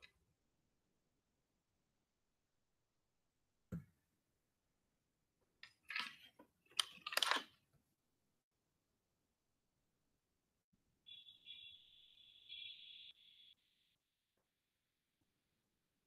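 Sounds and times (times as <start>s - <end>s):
clicks and rustling scrapes: 5.6s - 7.6s.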